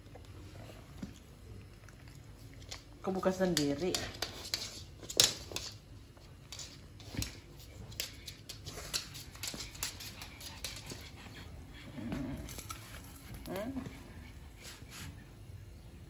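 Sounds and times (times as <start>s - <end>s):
dog claws clicking on wooden floor: 2.6s - 11.2s.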